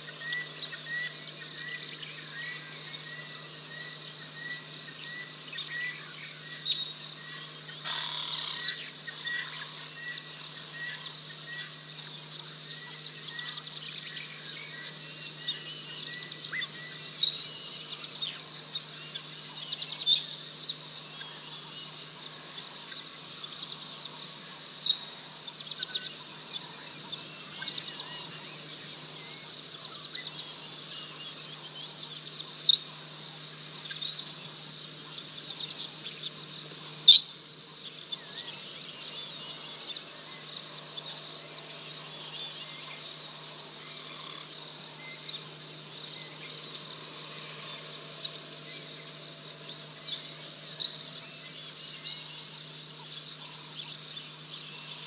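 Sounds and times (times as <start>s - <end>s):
birds calling: 0.0s - 55.0s
faint steady hum: 0.0s - 55.0s.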